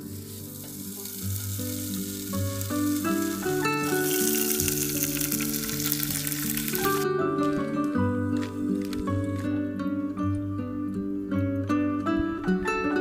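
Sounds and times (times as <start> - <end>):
meat sizzling on grill pan: 0.0 - 7.0
background music: 0.0 - 13.0.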